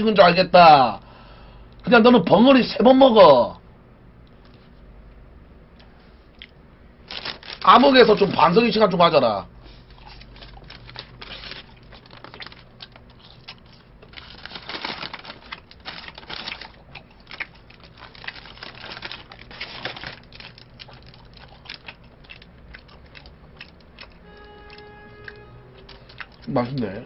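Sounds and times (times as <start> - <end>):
food wrapper crackling: 7.0 - 9.0, 9.7 - 26.9
crunchy chewing: 9.6 - 27.0.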